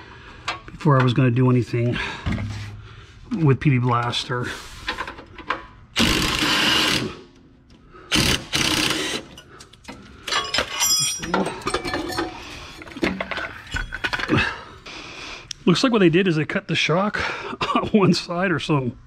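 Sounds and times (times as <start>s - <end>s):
cordless impact wrench: 6.0s - 7.2s, 8.1s - 9.4s
metal clinking and rattling: 9.3s - 14.3s.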